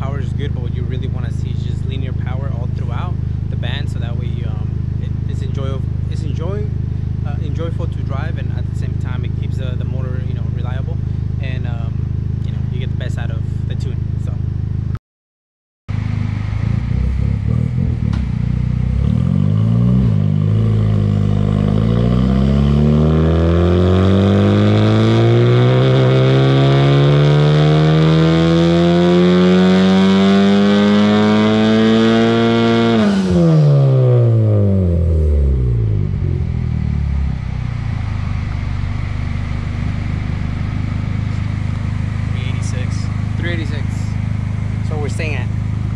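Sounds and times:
car engine revving on dyno: 15.9s - 45.9s.

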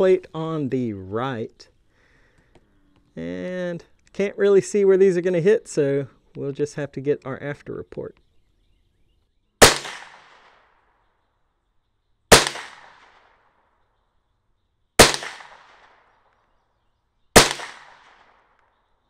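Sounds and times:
rifle shots with echo: 9.6s - 11.0s, 12.3s - 13.9s, 15.0s - 16.6s, 17.3s - 18.8s.

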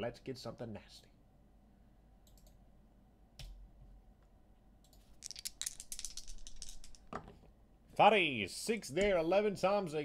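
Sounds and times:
dice rattling: 5.1s - 7.2s.

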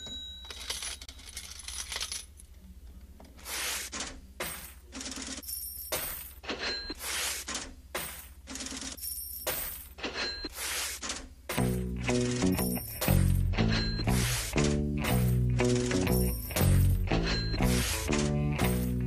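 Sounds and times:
sharp metallic clinks: 11.6s - 14.4s, 15.0s - 19.0s.

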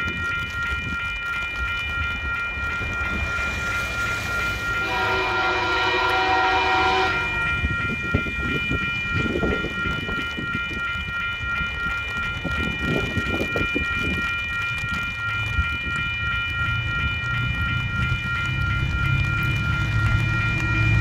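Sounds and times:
high ringing tone: 0.0s - 21.0s
train low rumble: 0.0s - 21.0s
train horn blast: 4.2s - 7.7s.

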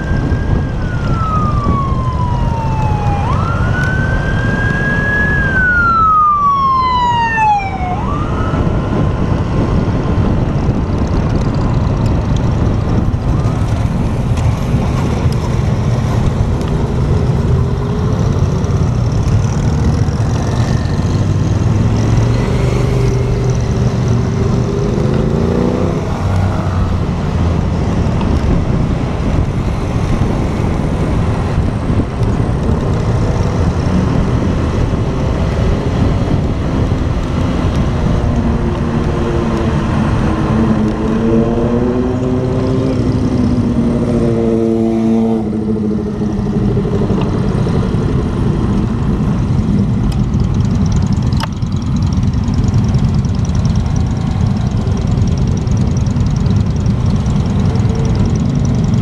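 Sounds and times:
wind rush: 0.0s - 50.1s
motorcycle engine revving: 8.2s - 59.0s.

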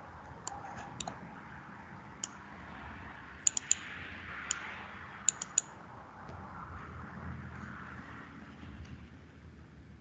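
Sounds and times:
mouse button clicks: 3.5s - 3.8s, 5.3s - 5.6s.

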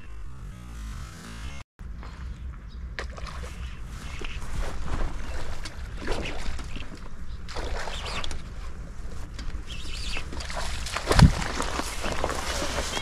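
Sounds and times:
wind rumbling on microphone: 1.9s - 13.0s
rustling noises: 3.4s - 13.0s.

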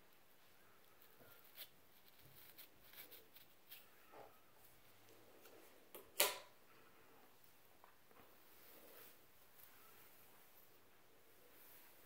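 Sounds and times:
comb scratching scalp: 0.8s - 3.9s.

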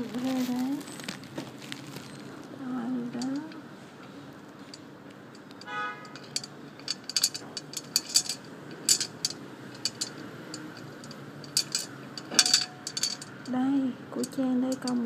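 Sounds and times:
small hard objects clinking: 0.0s - 2.5s, 5.4s - 13.5s, 14.2s - 15.0s.

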